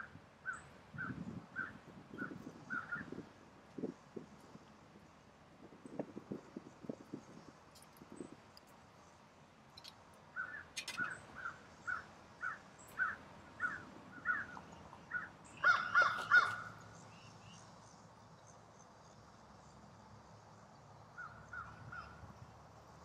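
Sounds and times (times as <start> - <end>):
crow cawing: 11.4 - 16.8.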